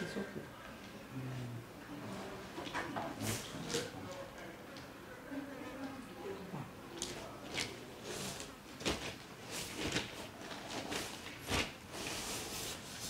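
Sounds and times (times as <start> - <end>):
plastic rustles: 7.0 - 13.0.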